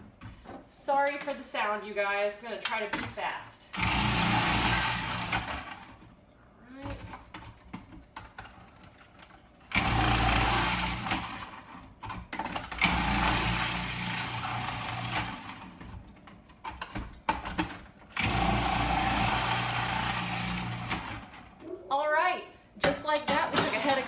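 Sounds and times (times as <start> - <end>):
food processor motor running: 3.8 - 5.9, 9.7 - 11.8, 12.6 - 15.9, 18.2 - 21.5.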